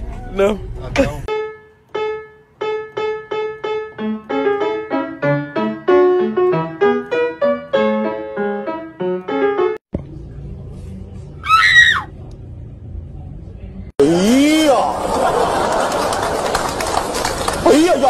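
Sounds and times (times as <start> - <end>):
light piano music: 1.3 - 9.8
low steady hum: 9.9 - 11.4
hamster squealing: 11.4 - 12.1.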